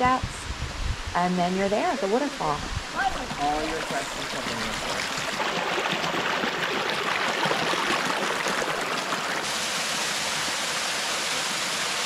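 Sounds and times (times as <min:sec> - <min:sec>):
creek babbling over stones: 0:01.6 - 0:10.9
small waterfall rushing: 0:01.6 - 0:12.0.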